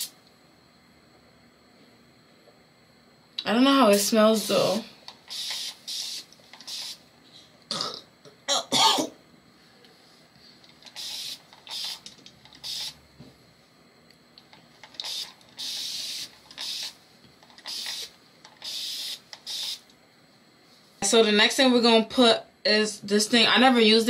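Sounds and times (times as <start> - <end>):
spray bottle misting: 5.2 - 7.0, 10.9 - 13.0, 14.9 - 17.0, 17.6 - 19.8.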